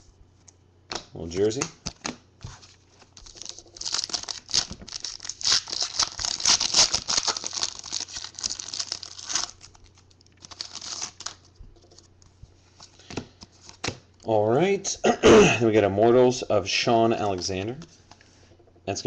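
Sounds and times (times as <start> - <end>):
foil wrapper crinkling: 3.0 - 12.0.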